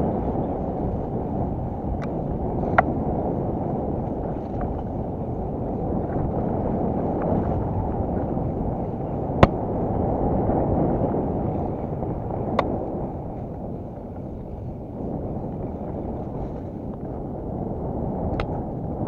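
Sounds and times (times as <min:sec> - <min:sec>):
bike tyres rumbling on dirt: 0:00.0 - 0:19.0.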